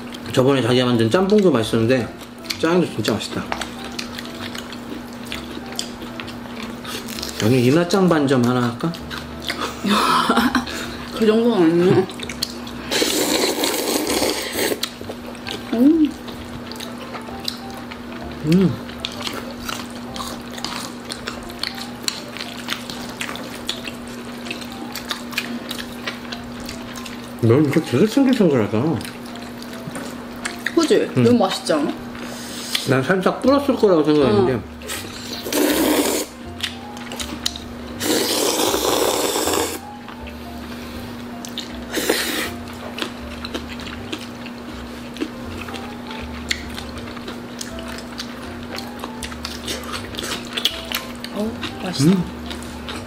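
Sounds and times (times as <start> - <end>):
soft background music: 0.0 - 53.0
chewing: 2.1 - 9.9, 11.8 - 33.0, 34.1 - 40.2, 41.2 - 53.0
person slurping noodles: 12.9 - 14.8, 34.9 - 36.3, 38.0 - 39.8, 41.9 - 42.5.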